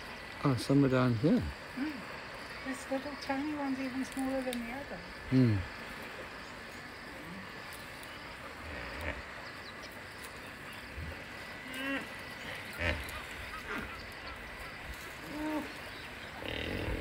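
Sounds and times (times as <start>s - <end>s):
small chirping calls: 0.0s - 17.0s
hippos grunting: 7.1s - 17.0s.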